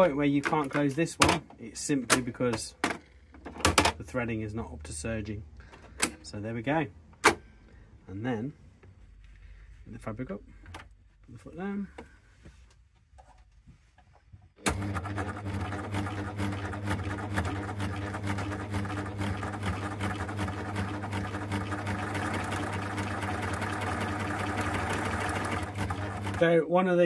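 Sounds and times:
sewing machine motor hum: 14.6s - 26.4s.

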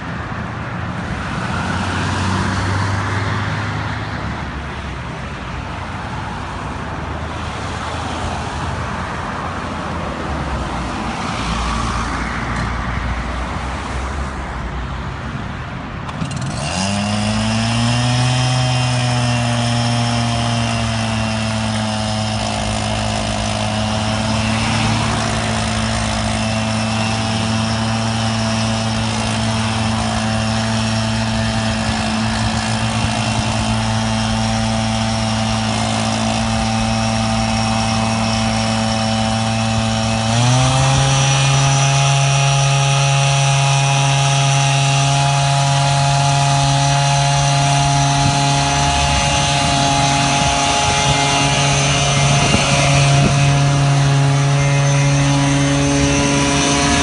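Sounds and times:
small petrol engine revving: 16.1s - 57.0s.

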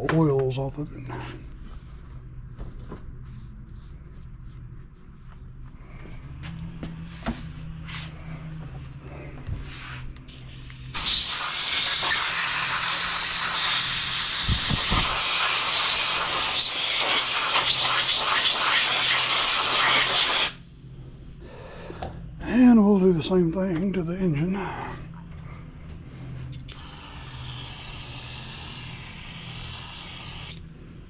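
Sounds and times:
compressed air blow gun hissing: 10.3s - 20.6s, 26.7s - 30.6s.

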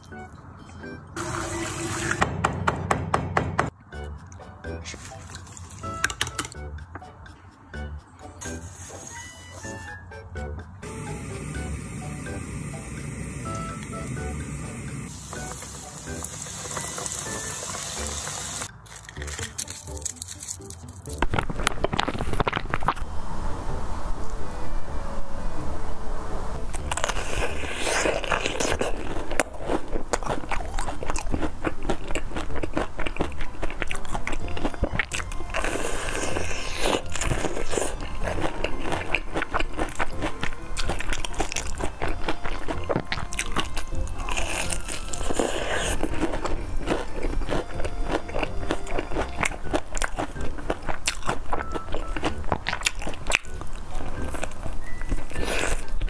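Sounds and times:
crunchy chewing of fried chicken: 4.9s - 6.0s, 16.6s - 23.1s, 26.7s - 56.0s.

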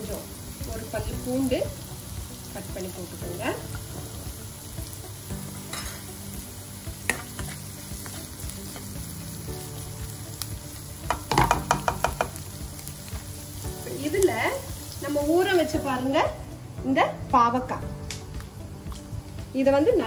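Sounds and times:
onions sizzling in oil: 0.0s - 20.0s
spatula scraping and tapping pan: 7.1s - 8.9s, 11.1s - 12.4s.

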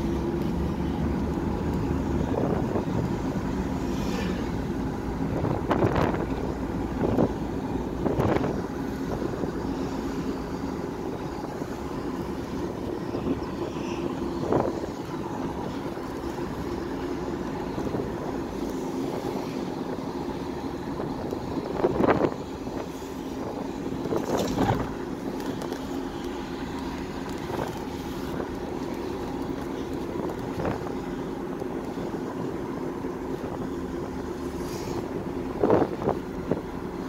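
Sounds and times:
vehicle engine and road noise: 0.0s - 37.0s
wind noise: 1.2s - 25.9s, 32.1s - 37.0s.

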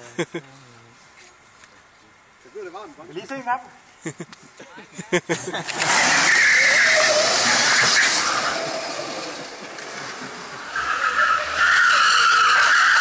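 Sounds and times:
tyres squealing and skidding: 5.7s - 13.0s.

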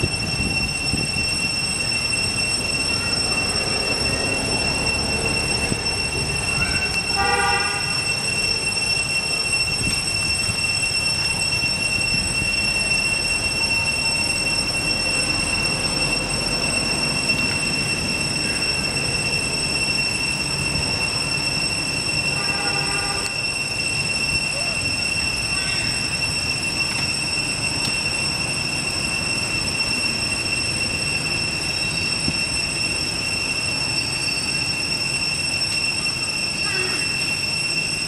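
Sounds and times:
shrill high-pitched whine: 0.0s - 38.0s
short squealing call: 24.4s - 26.2s, 36.0s - 38.0s.

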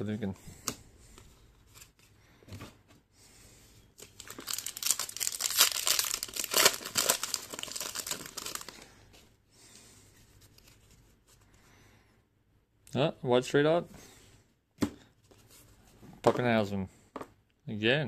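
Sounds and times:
cards rustling: 4.0s - 8.8s
foil pack crackling: 4.1s - 8.8s.

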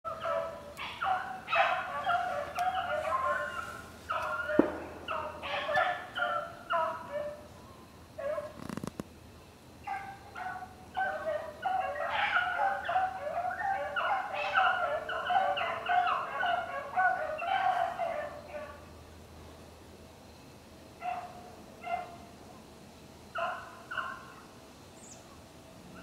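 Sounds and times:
hounds baying: 0.1s - 7.6s, 8.2s - 8.6s, 9.8s - 18.9s, 21.0s - 22.2s, 23.4s - 24.5s.

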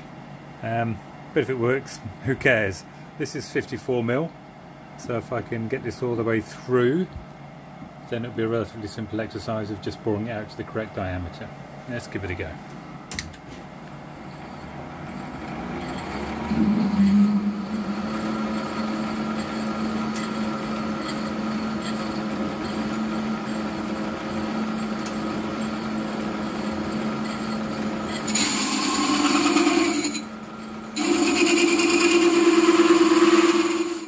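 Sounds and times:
lathe hum: 13.8s - 34.0s
hole saw cutting whir: 14.3s - 34.0s.

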